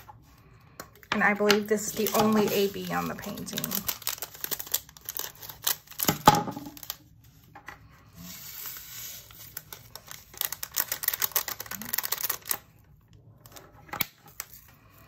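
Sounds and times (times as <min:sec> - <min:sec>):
plastic bag crinkling: 0:01.2 - 0:07.2, 0:08.2 - 0:12.8.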